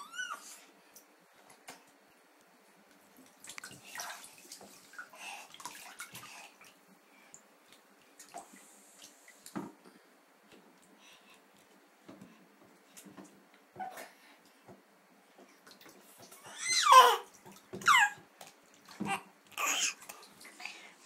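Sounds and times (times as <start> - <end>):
bathwater splashing: 3.1 - 6.9, 15.4 - 20.9.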